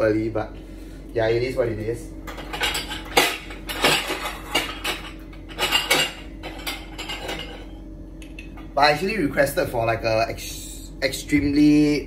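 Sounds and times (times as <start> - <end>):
ceramic plates clinking: 2.4 - 7.7.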